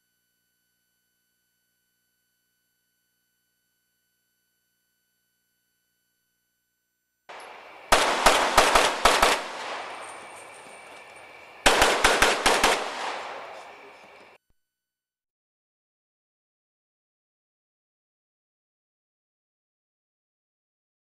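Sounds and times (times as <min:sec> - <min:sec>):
pistol shots: 0:07.3 - 0:14.4.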